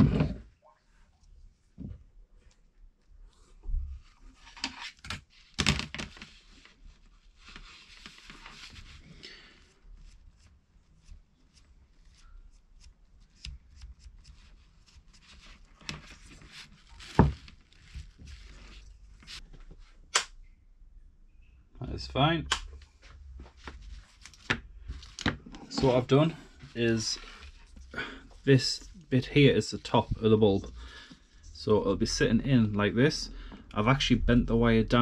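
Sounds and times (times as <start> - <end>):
paper towel rustling: 5.4 - 12.3, 14.2 - 19.5, 23.0 - 29.1.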